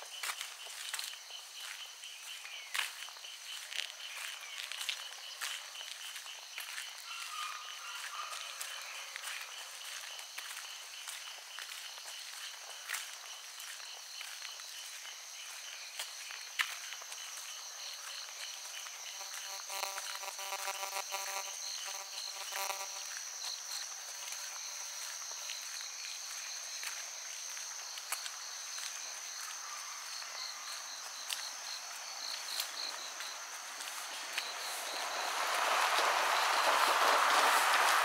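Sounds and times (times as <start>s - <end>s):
crickets trilling: 0.0s - 38.0s
footsteps clicking on a path: 0.0s - 38.0s
cricket fast pulsing chirp: 17.1s - 26.8s, 29.2s - 37.8s
buzzy pitched call: 19.1s - 23.1s.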